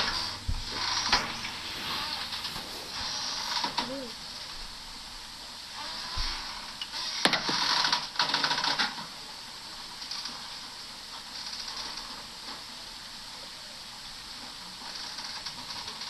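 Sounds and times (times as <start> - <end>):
washing machine spinning: 0.0 - 11.4.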